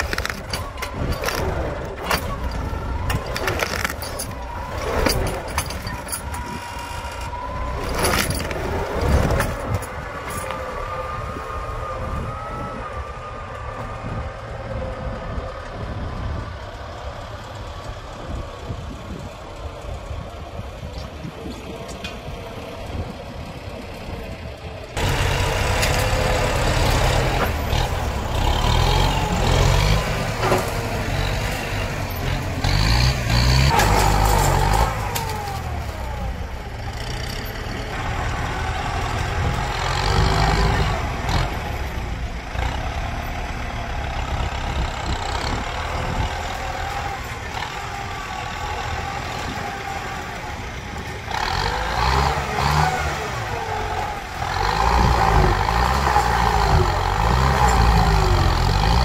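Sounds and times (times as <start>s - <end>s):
tree trunk cracking: 0.0s - 5.1s
tractor diesel engine under load: 0.0s - 59.0s.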